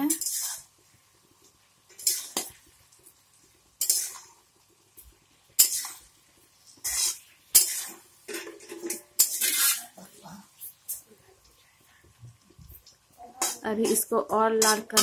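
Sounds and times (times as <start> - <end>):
metal spatula scraping a pan: 0.0 - 0.7, 1.9 - 2.7, 3.8 - 4.5, 5.5 - 11.0, 13.3 - 15.0
onions frying in oil: 0.0 - 15.0.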